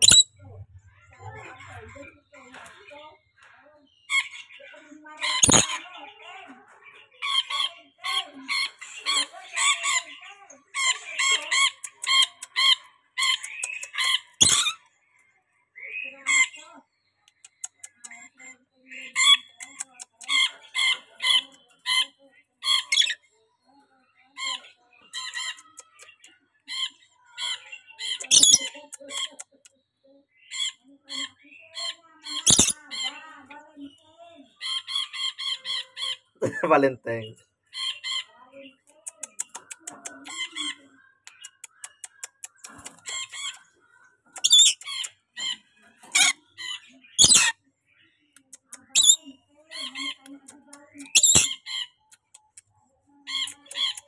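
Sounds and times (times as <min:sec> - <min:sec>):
lorikeet squawking and chattering: 0:00.0 - 0:02.0, 0:05.2 - 0:05.8, 0:10.8 - 0:14.9, 0:19.0 - 0:23.2, 0:24.4 - 0:29.4, 0:30.4 - 0:33.3, 0:34.5 - 0:36.8, 0:37.7 - 0:38.4, 0:39.0 - 0:43.7, 0:44.3 - 0:47.6, 0:48.6 - 0:52.6, 0:53.2 - 0:54.0
sharp clicks: 0:41.3 - 0:43.7.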